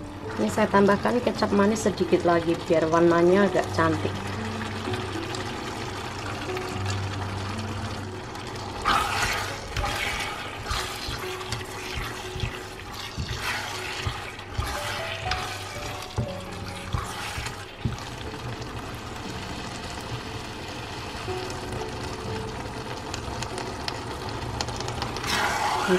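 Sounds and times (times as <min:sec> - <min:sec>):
food sizzling in a frying pan: 0:00.0 - 0:25.9
spatula scraping pan: 0:08.8 - 0:18.2
spatula tapping pan: 0:10.7 - 0:18.4.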